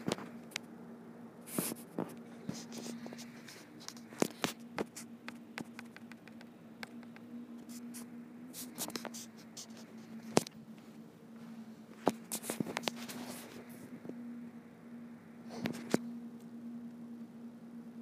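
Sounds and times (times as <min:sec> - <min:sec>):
steady low hum: 0:00.0 - 0:18.0
sharp clicks and knocks: 0:03.8 - 0:07.3.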